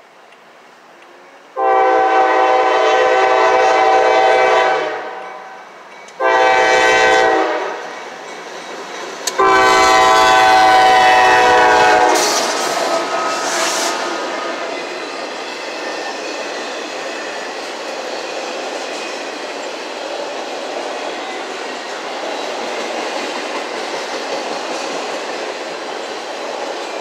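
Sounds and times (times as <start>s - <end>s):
locomotive passing: 0.2s - 27.0s
locomotive air horn blasts: 1.6s - 5.5s, 6.2s - 7.8s, 9.4s - 12.6s.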